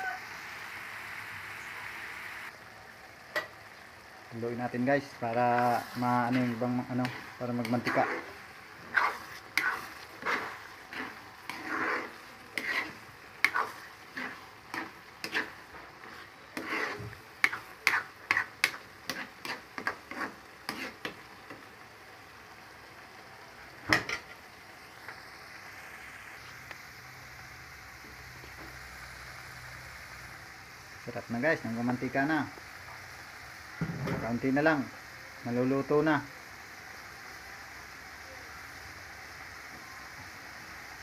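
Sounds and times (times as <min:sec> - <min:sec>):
low sizzle: 0:00.0 - 0:41.0
spatula scraping a pan: 0:05.3 - 0:21.6.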